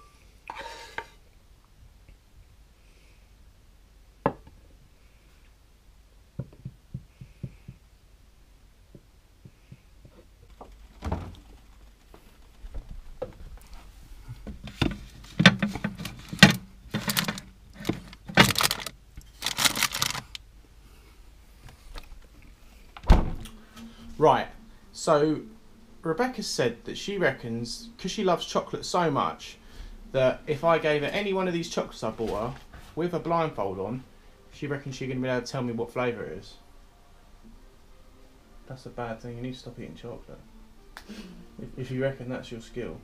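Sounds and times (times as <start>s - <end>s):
knocks and clatter: 14.5s - 18.9s.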